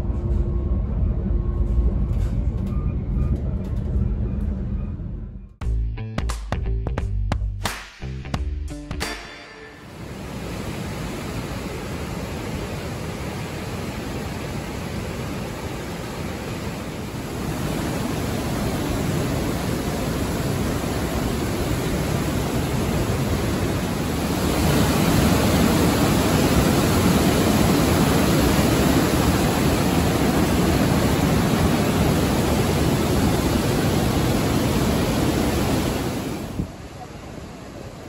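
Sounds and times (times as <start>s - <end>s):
river water rushing over weir: 9.8s - 38.0s.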